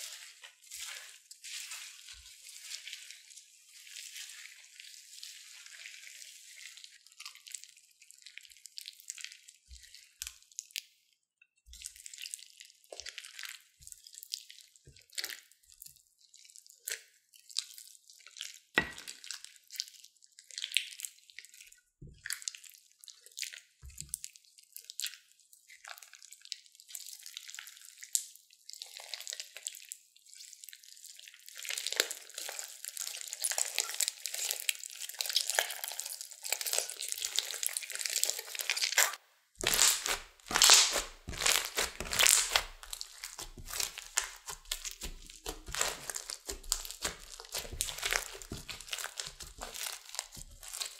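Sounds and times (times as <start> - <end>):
slime squelching in hands: 0.0 - 10.6, 31.4 - 50.9
slime stirred with spatula: 0.0 - 11.0, 11.6 - 50.9.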